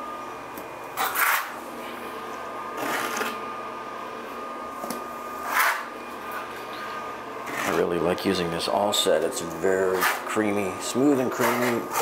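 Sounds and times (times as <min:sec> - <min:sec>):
faint steady hum: 0:00.0 - 0:12.0
trowel scraping mortar: 0:01.0 - 0:01.6, 0:02.8 - 0:03.4, 0:05.4 - 0:05.9, 0:07.4 - 0:07.9, 0:09.8 - 0:10.4, 0:11.2 - 0:12.0.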